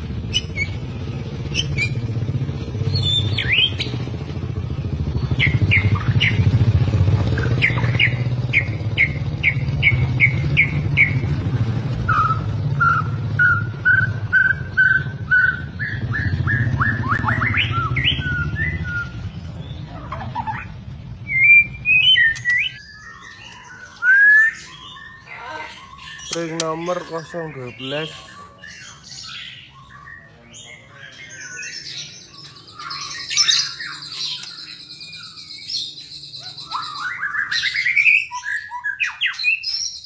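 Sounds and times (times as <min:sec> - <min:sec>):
bird singing whistled phrases: 0:02.9 - 0:03.9, 0:07.4 - 0:11.2, 0:12.1 - 0:19.4, 0:20.3 - 0:40.0.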